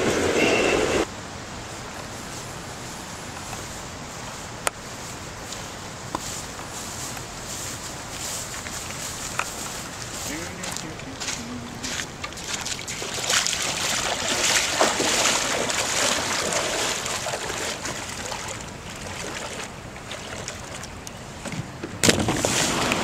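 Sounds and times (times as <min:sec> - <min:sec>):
water flowing through a dam: 0:01.0 - 0:21.4
river water rushing: 0:07.3 - 0:21.4.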